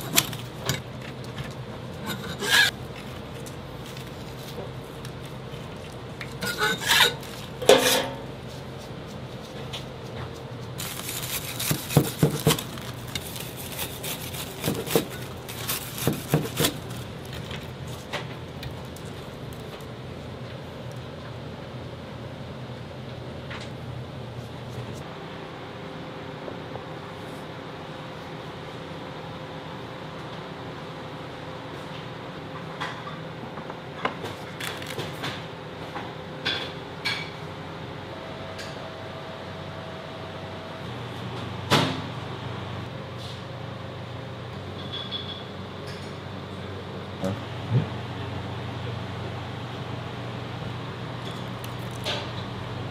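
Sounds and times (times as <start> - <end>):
knife crunching through fried crust: 10.8 - 17.5.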